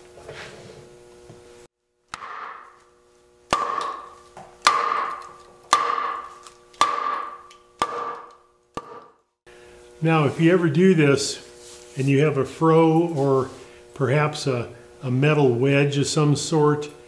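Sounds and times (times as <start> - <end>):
club striking steel blade: 2.1 - 2.8, 3.5 - 9.2.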